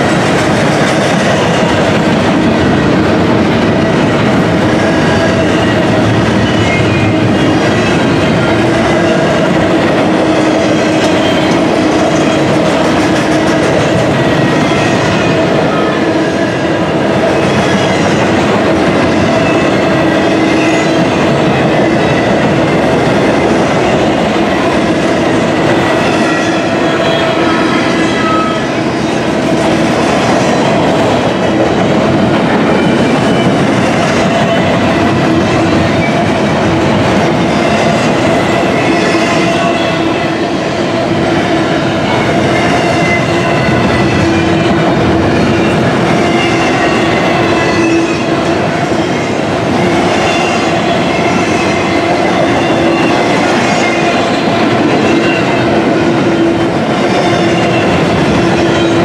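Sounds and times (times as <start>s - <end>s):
train wheels on rails: 0.0s - 59.0s.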